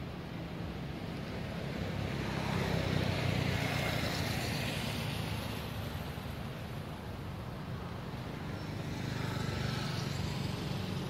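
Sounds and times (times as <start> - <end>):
motor vehicle passing by: 8.4 - 11.0.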